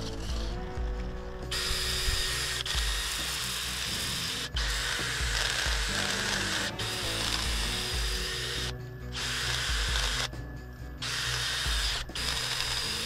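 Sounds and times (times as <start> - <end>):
background music with steady beat: 0.0 - 13.0
lathe tool hissing on wood: 1.5 - 10.3.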